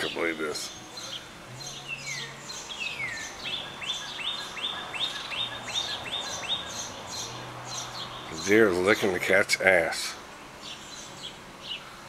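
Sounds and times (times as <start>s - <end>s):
high bird chirps: 0.6s - 8.6s.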